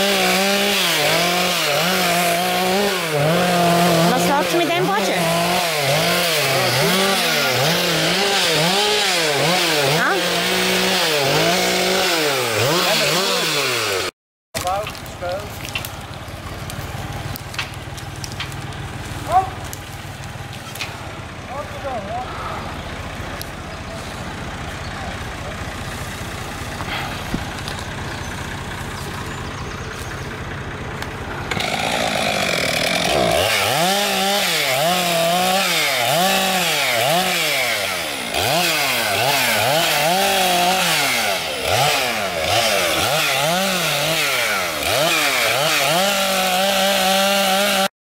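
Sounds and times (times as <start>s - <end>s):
chainsaw cutting wood: 0.0s - 21.1s, 31.0s - 47.9s.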